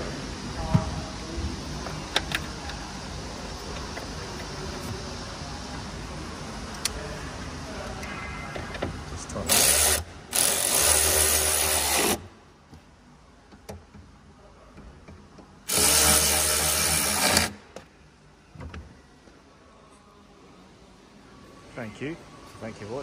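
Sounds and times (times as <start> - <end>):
power driver driving screws: 15.7 - 17.6.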